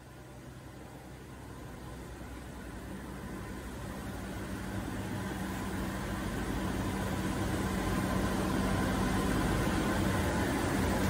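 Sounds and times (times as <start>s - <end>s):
low machinery hum: 0.0s - 11.0s.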